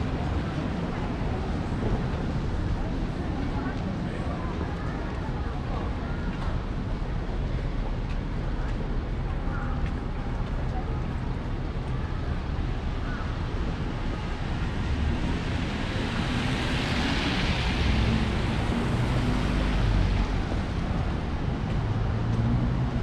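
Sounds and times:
low traffic rumble: 0.0s - 23.0s
vehicle passing on wet road: 14.2s - 22.9s.

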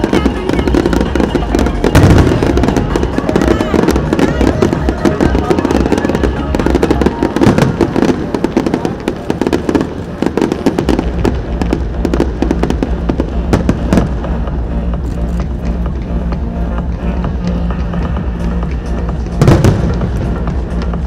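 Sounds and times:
fireworks bursting and crackling: 0.0s - 21.0s
music playing: 0.0s - 21.0s
deep bass: 10.7s - 21.0s.

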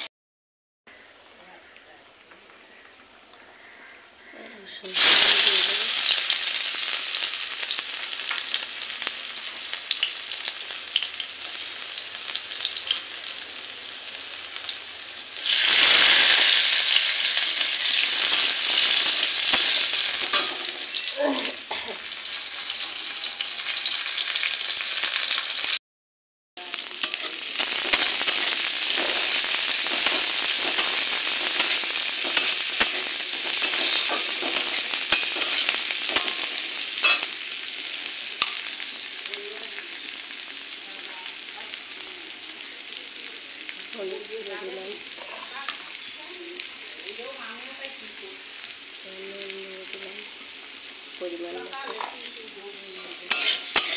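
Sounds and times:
onions and chillies sizzling in oil: 0.9s - 25.8s, 26.6s - 53.9s
metal spatula scraping a pan: 17.8s - 21.1s, 27.0s - 37.4s, 52.9s - 53.9s.

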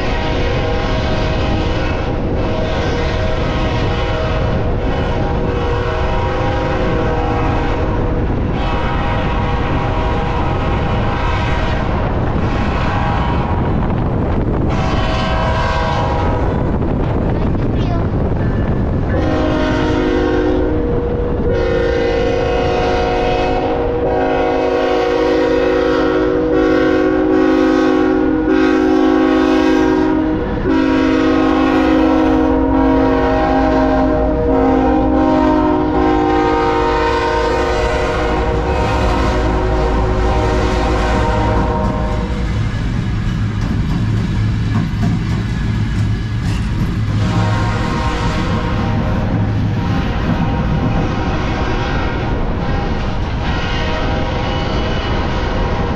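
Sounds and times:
locomotive air horn blast: 0.0s - 16.6s, 19.1s - 42.7s, 47.2s - 49.3s, 49.9s - 55.8s
rail noise: 0.0s - 55.9s
locomotives rumbling: 29.7s - 55.9s.

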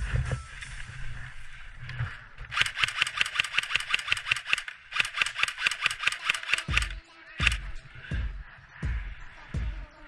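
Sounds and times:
airsoft rifle bursts: 2.5s - 7.7s.

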